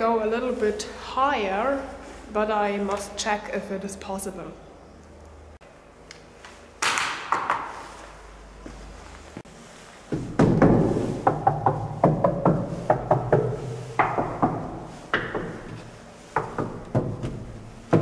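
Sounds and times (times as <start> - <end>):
knocks on wooden stair steps: 10.1 - 18.0.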